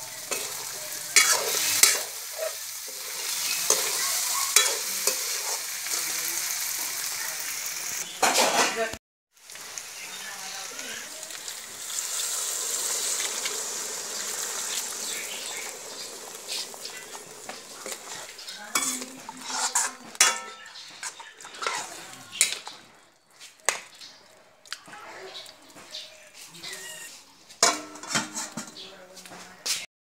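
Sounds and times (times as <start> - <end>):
curry sizzling in a wok: 0.0 - 24.4, 25.4 - 29.1
metal utensil clinking on wok: 0.1 - 6.0, 17.8 - 22.7, 27.6 - 28.9.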